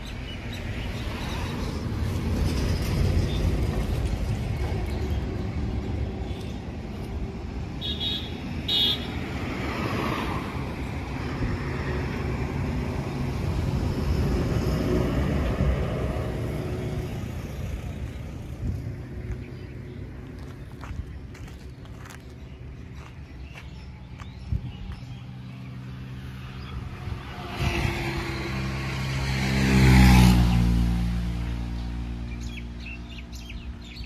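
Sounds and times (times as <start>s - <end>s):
road traffic rumble: 0.0s - 34.0s.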